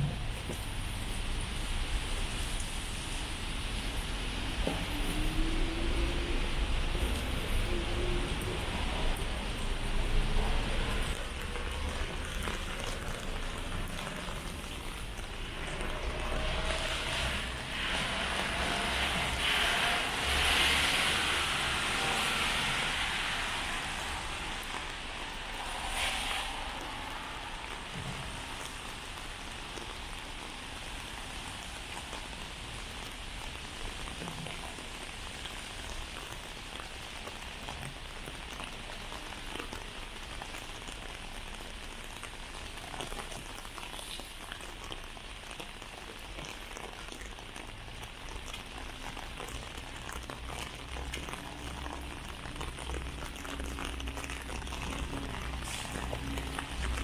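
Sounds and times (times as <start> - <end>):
rain falling on wet street: 0.0 - 57.0
rushing hiss: 15.9 - 28.9.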